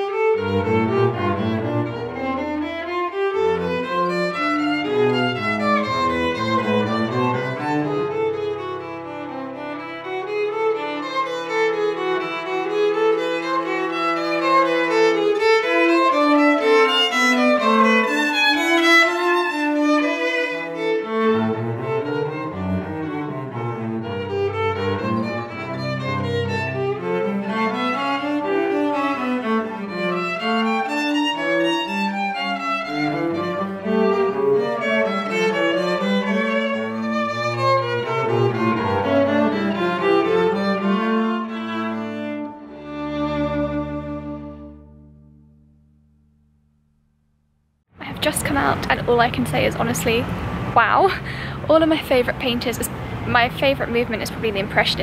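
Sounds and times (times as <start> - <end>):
violin melody: 0.0 - 45.8, 48.0 - 55.0
cello part: 0.0 - 46.2, 48.0 - 55.0.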